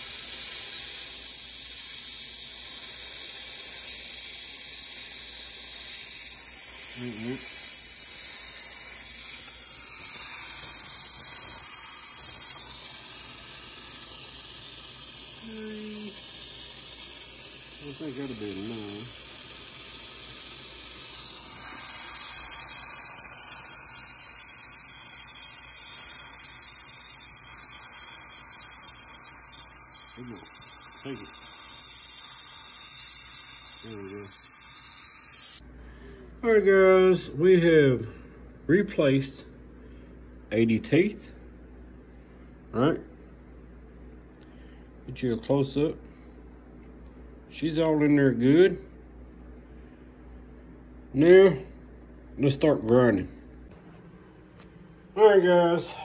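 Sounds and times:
torch flame hissing: 0.0 - 35.6.

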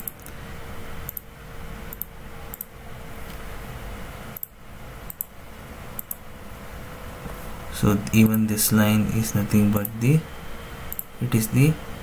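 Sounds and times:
room noise hum: 0.0 - 12.0
computer mouse clicking: 1.1 - 1.3, 1.9 - 2.7, 5.1 - 5.3, 6.0 - 6.2.

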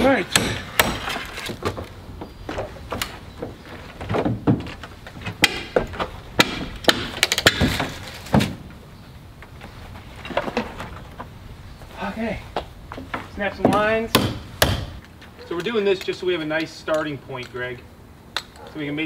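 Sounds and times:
wooden knocks and clatter: 0.8 - 8.8, 9.4 - 11.4, 12.6 - 15.0.

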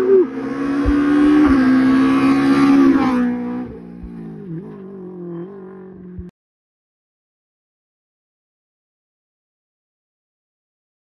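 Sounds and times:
rally car engine passing: 0.0 - 6.3.

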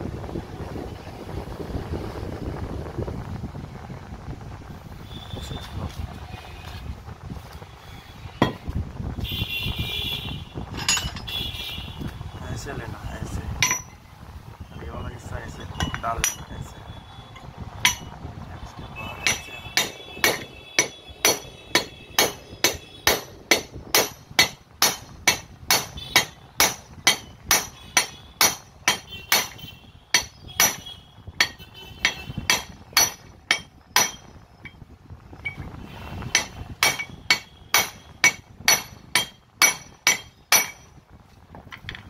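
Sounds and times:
hammer tapping on metal: 13.6 - 14.0, 17.8 - 18.2, 19.2 - 34.8, 36.3 - 40.9.

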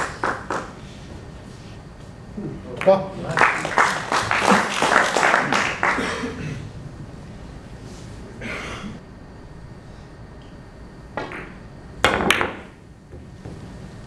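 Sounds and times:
billiard balls colliding: 11.1 - 13.8
cue striking ball click: 11.2 - 13.6.

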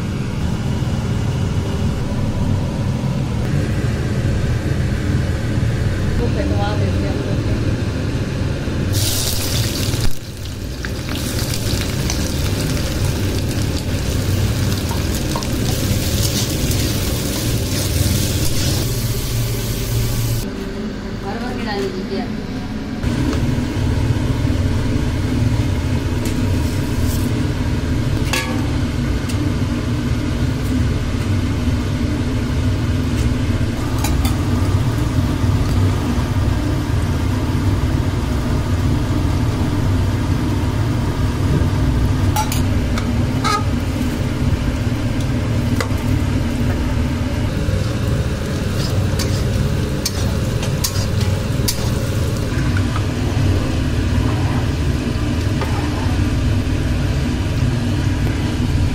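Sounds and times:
low kitchen rumble: 0.0 - 58.9
onions sizzling in hot oil: 8.9 - 20.4, 47.2 - 54.1.

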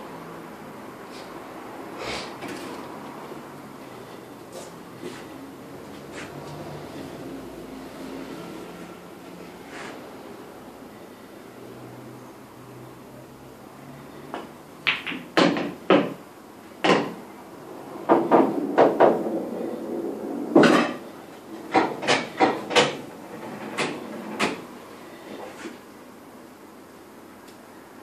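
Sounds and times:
pool balls clacking: 14.4 - 16.2, 16.8 - 17.2, 18.0 - 24.7.

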